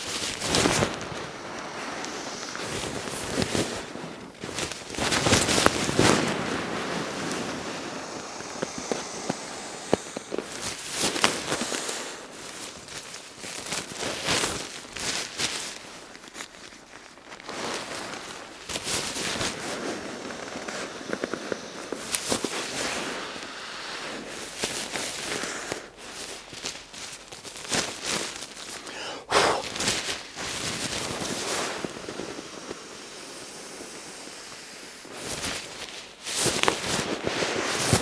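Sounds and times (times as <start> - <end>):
nylon sack rustling and crinkling: 12.4 - 20.6, 24.2 - 32.0.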